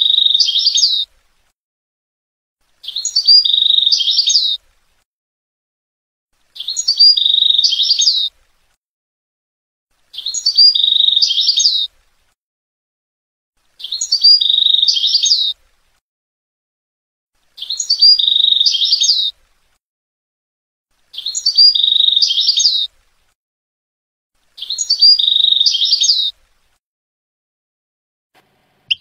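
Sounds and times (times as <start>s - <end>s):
goldfinch song twittering: 0.0s - 1.1s, 2.8s - 4.6s, 6.4s - 8.3s, 10.1s - 11.9s, 13.7s - 15.6s, 17.5s - 19.3s, 21.1s - 22.9s, 24.6s - 26.3s.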